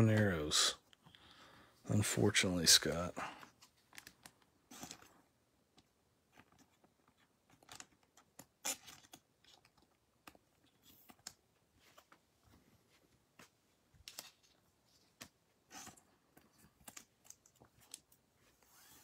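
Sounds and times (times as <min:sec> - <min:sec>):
cards rustling in plastic sleeve: 0:02.7 - 0:05.4, 0:14.0 - 0:19.0.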